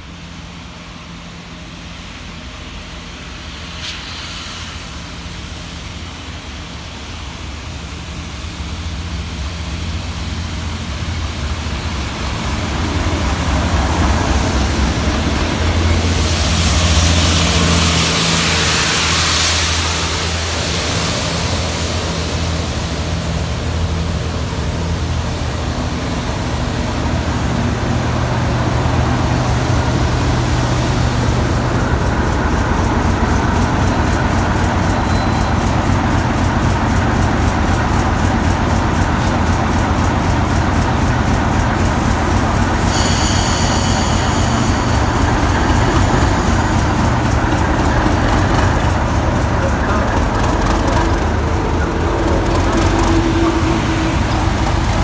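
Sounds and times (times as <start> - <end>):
diesel locomotive engine drone: 0.0 - 55.0
rushing noise of passing train: 0.0 - 55.0.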